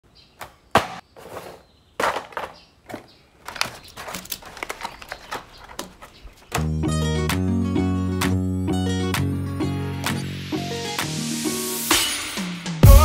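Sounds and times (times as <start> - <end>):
plastic clicks and rattles: 3.4 - 6.6.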